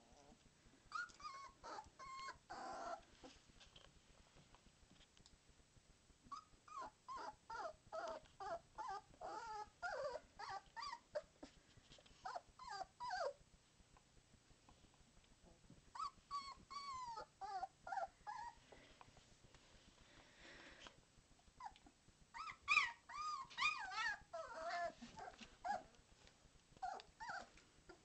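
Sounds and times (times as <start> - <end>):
puppies whining: 0.0 - 3.0, 6.3 - 11.3, 12.2 - 13.4, 15.9 - 18.6, 21.6 - 25.9, 26.8 - 28.0.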